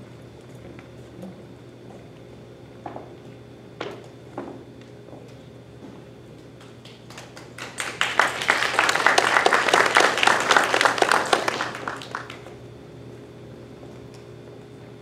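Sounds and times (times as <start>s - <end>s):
audience applauding: 6.8s - 12.6s.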